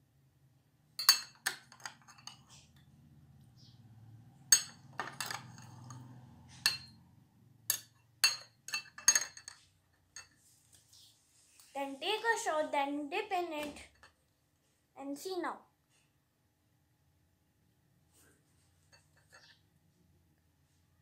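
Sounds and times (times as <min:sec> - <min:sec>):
spoon clinking in a glass: 0:01.0 - 0:02.4, 0:04.5 - 0:07.0, 0:07.7 - 0:10.4.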